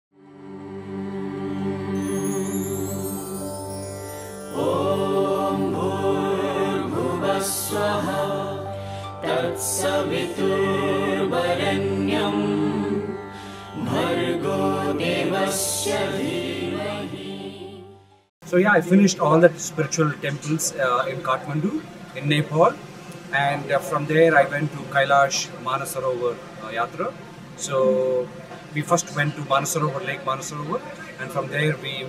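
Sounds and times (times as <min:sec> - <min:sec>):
voice chanting: 0:27.7 - 0:28.3.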